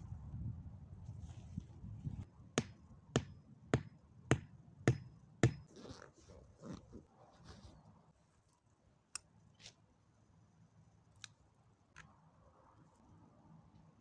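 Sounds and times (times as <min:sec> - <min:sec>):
hatchet knocking a stake: 0:02.6 - 0:05.7.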